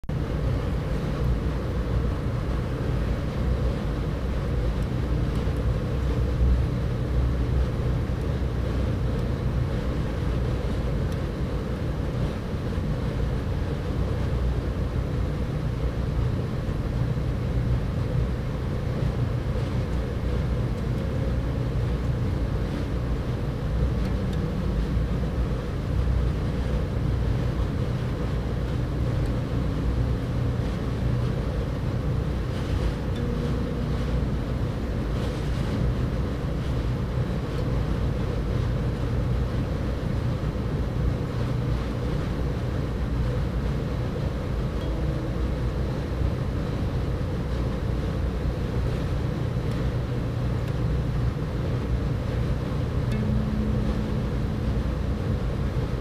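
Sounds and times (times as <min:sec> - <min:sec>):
low background rumble: 0:00.0 - 0:56.0.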